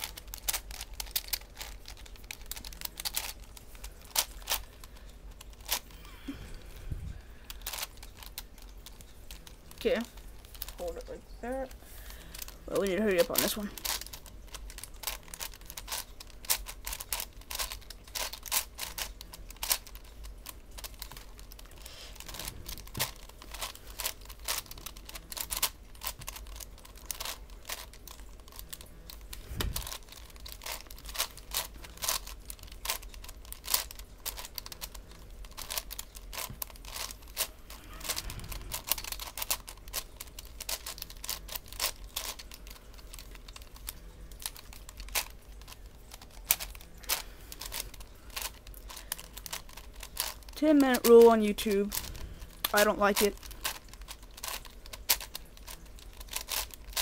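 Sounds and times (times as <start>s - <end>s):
puzzle cube plastic clicks: 0.0s - 6.4s, 7.4s - 57.0s.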